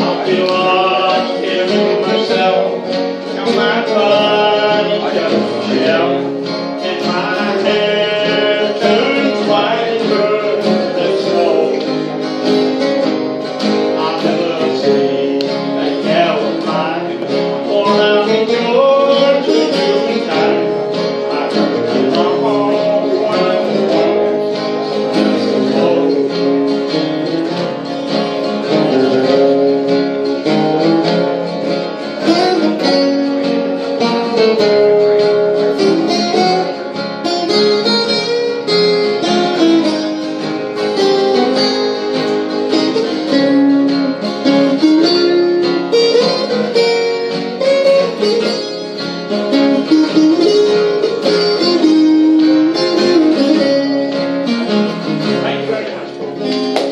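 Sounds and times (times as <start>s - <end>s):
man singing: 0.0s - 12.1s, 13.6s - 27.0s
acoustic guitar strumming: 0.0s - 56.9s.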